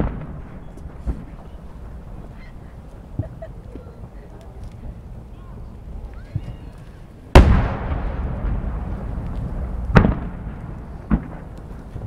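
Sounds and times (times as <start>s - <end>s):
smaller firework bang: 0.0s - 2.4s, 7.3s - 12.0s
firework booms: 0.0s - 4.2s, 4.9s - 12.0s.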